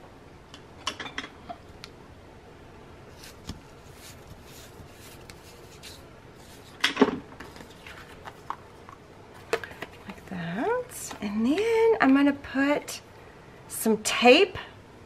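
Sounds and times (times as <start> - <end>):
paper crackling rustle: 3.1 - 6.8, 7.4 - 10.4.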